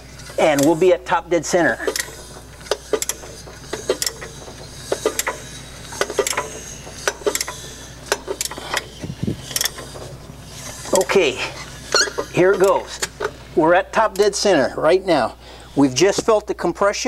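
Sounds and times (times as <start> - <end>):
ratchet clicking: 0.0 - 0.8, 1.7 - 13.4.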